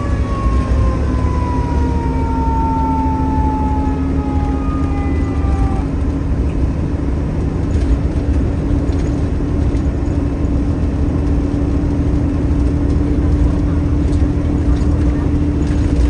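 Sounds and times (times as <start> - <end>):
siren winding down: 0.0 - 6.4
fire engine rumble: 0.0 - 16.0.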